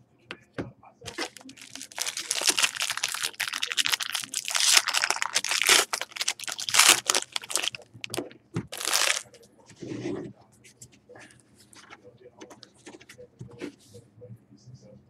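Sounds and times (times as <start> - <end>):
foil wrapper crinkling: 1.1 - 9.3.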